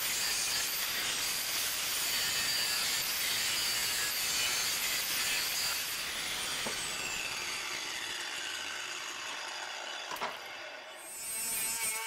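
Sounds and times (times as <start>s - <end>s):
angle grinder winding down: 6.4s - 12.0s.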